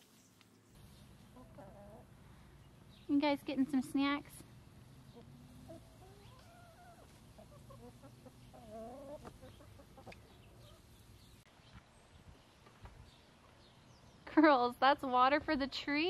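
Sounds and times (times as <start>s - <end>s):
hens clucking: 1.1s - 2.2s, 4.8s - 11.3s.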